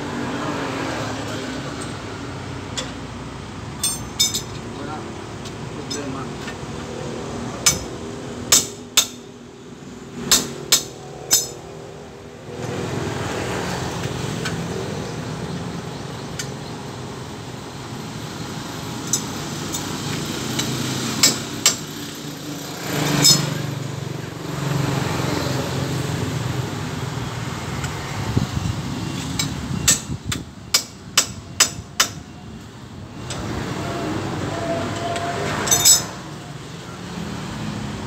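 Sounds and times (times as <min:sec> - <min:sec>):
street traffic noise: 0:00.0 - 0:38.0
metallic hammer strikes: 0:07.6 - 0:07.9, 0:08.5 - 0:09.3, 0:10.3 - 0:11.7.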